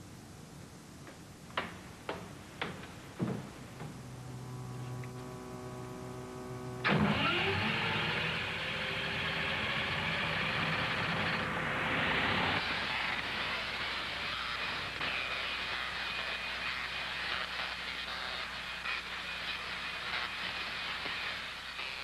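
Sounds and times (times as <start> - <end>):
electrical hum of equipment: 0.0 - 22.0
high-voltage spark crackle: 8.2 - 22.0.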